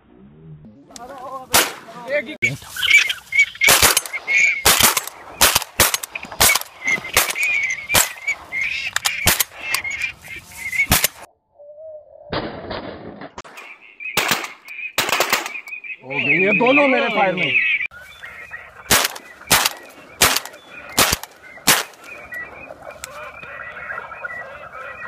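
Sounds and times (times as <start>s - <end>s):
ducks calling: 0.9s - 11.3s, 13.4s - 25.0s
shotgun shots: 1.5s - 2.0s, 3.6s - 8.3s, 9.2s - 9.6s, 10.9s - 11.3s, 12.3s - 15.7s, 18.9s - 22.2s.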